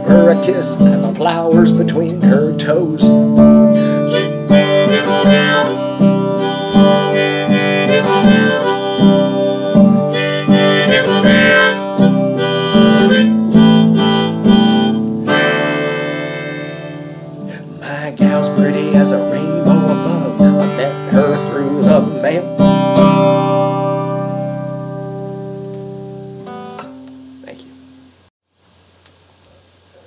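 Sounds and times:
strummed acoustic guitar: 0.0 - 27.6
harmonica playing: 2.6 - 17.7.

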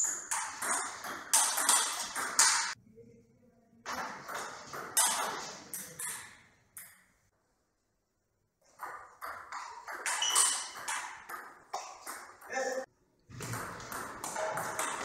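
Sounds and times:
ping pong ball hitting paddles: 0.0 - 2.8, 3.9 - 7.0, 8.6 - 12.7, 13.3 - 15.0.

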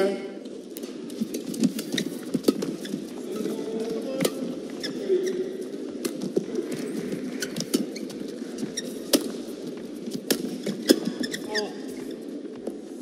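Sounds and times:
shoes squeaking on court: 1.1 - 12.9.

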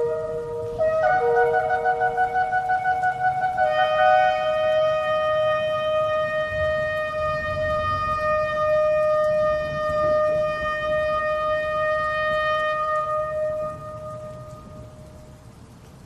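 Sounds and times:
shofar blast: 0.0 - 15.2.

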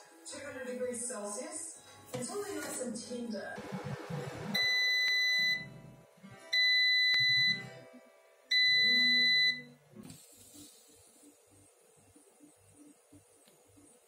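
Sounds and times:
air fryer high-pitched beeps: 3.6 - 5.8, 6.5 - 7.7, 8.5 - 9.8.

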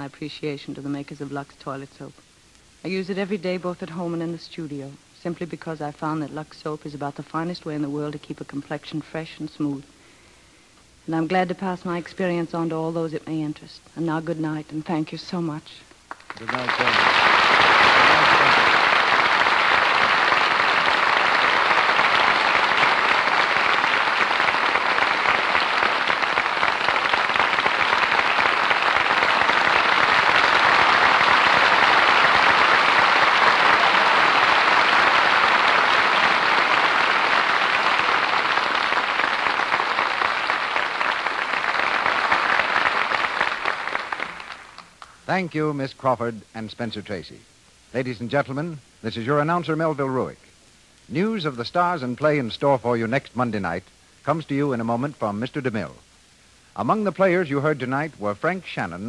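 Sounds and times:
audience applauding: 16.1 - 45.2.

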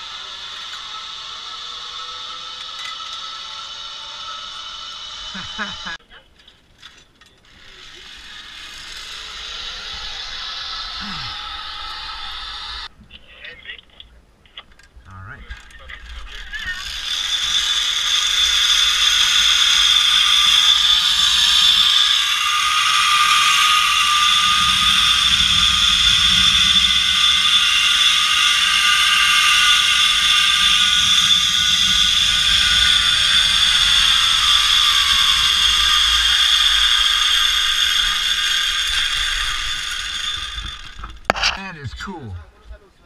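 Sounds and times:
pulley wheels whirring on cable: 0.0 - 12.9, 15.5 - 41.4.

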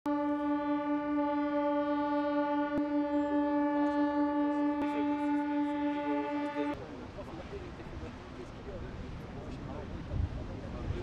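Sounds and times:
horn holding a long note: 0.1 - 6.8.

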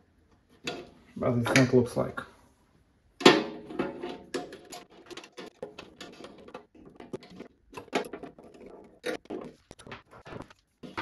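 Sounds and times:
clicks taps and scrapes on sheet metal: 3.2 - 11.0.

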